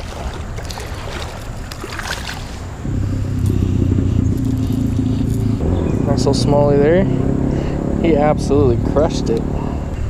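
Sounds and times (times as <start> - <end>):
fish splashing in water: 0.0 - 2.8
low engine drone: 0.0 - 10.0.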